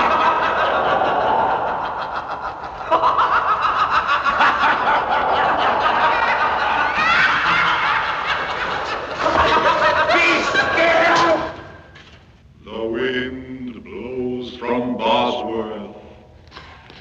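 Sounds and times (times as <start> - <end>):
people snickering and laughing: 0.0 - 11.7.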